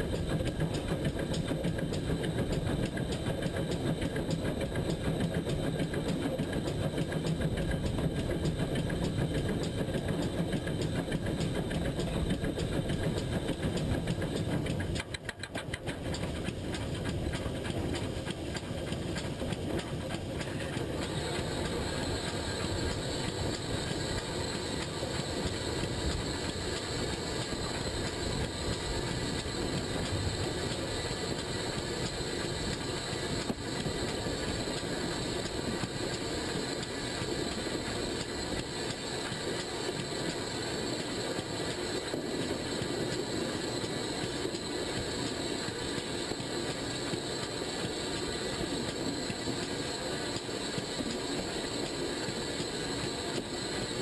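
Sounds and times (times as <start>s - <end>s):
steam locomotive running on track: 0.0s - 54.0s.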